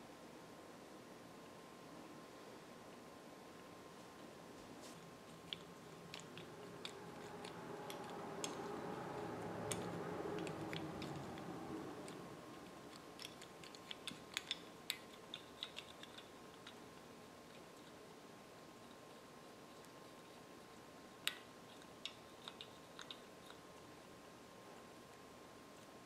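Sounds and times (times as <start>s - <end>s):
faint hum: 0.0s - 26.0s.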